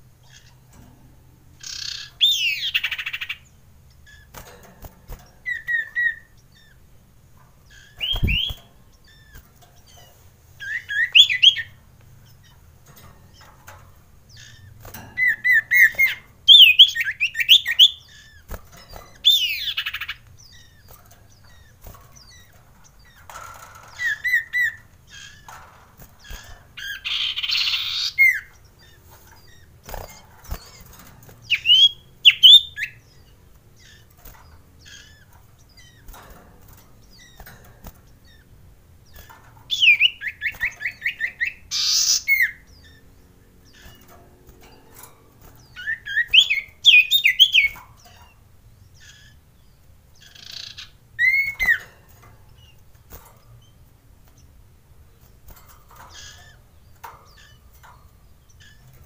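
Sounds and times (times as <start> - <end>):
bird whistling calls: 7.8 - 9.3, 10.6 - 11.8, 31.5 - 33.0, 39.7 - 42.6, 45.8 - 47.8, 50.3 - 51.8
bird harsh rasping call: 39.7 - 42.6.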